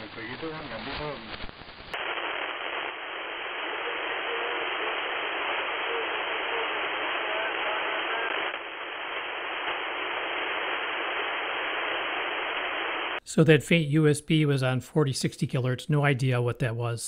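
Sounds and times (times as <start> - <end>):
radio static hiss: 0.0 - 13.2
faint broken radio transmission: 0.0 - 13.4.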